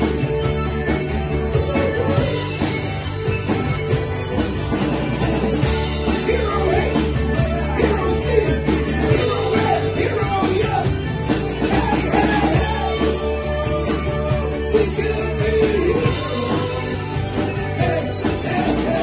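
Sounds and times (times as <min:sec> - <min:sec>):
bass guitar: 0:00.0 - 0:19.0
drum kit: 0:00.0 - 0:19.0
electric and acoustic guitars: 0:00.0 - 0:19.0
man singing: 0:06.1 - 0:11.0, 0:11.6 - 0:19.0.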